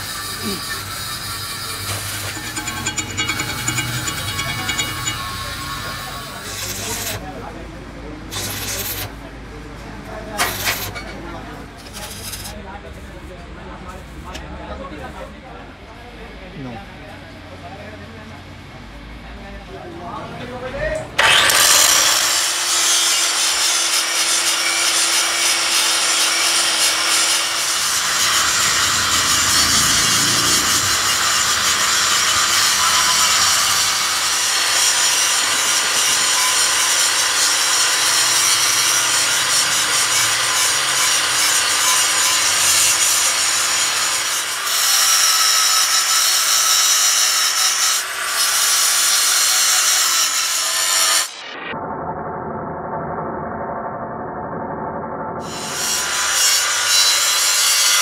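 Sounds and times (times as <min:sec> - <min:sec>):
angle grinder cutting steel: 0:00.0 - 0:07.3, 0:08.3 - 0:09.1, 0:21.2 - 0:51.7, 0:55.4 - 0:58.0.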